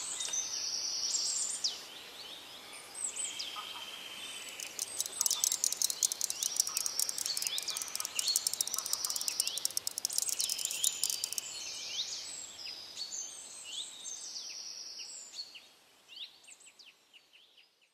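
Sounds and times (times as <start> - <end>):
small birds chirping and whistling: 4.4 - 11.6
fast clicking trill: 4.5 - 11.5.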